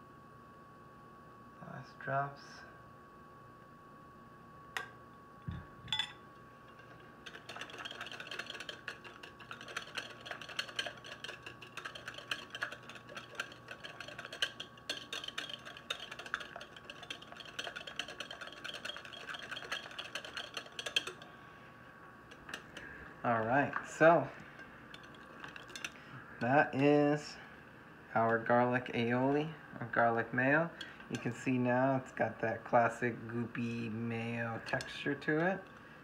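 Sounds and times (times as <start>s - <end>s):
whisk clicking against glass bowl: 6.7s - 21.3s, 22.3s - 22.8s, 24.6s - 26.0s.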